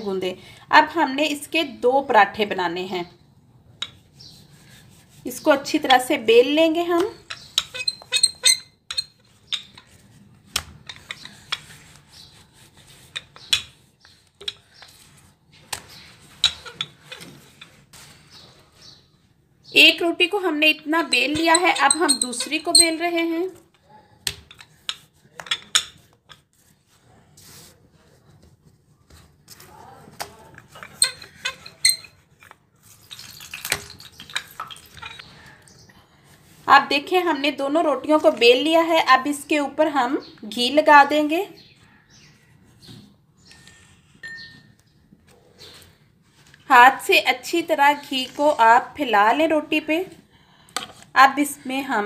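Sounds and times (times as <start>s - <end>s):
rolling pin rubbing dough: 3.9s - 19.0s, 20.3s - 23.6s, 30.6s - 33.0s.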